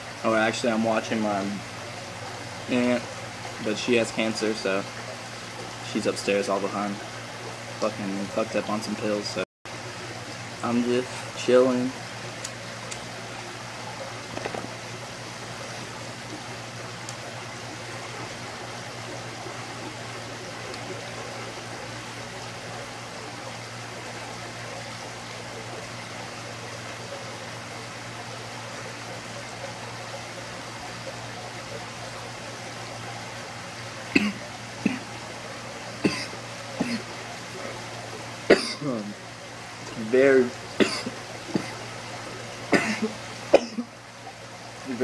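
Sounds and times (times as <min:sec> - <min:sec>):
steady hiss with low hum: 0:00.0 - 0:45.0
man coughing: 0:34.2 - 0:35.0, 0:36.0 - 0:37.1, 0:38.5 - 0:39.1, 0:40.8 - 0:41.8, 0:42.7 - 0:43.9.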